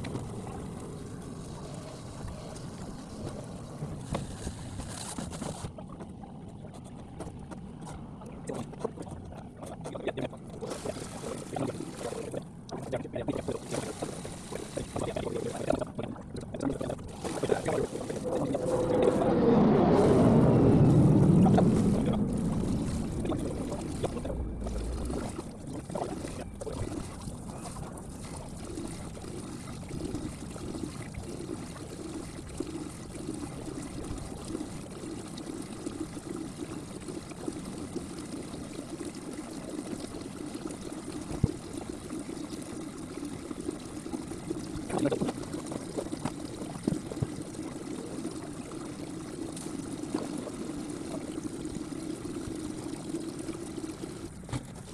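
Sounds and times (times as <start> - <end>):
water trickling and pouring: 0.0 - 7.5, 8.2 - 54.9
water rushing: 8.4 - 54.9
electric pump running: 9.8 - 38.9.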